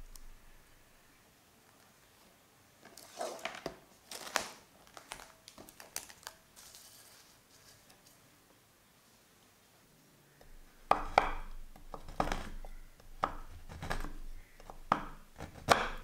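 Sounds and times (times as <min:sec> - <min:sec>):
cling film crinkling: 0:03.0 - 0:08.2.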